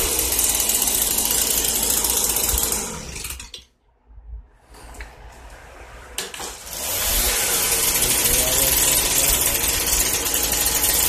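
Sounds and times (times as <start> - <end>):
leaf blower engine spinning down: 0.0 - 3.6, 6.5 - 11.0.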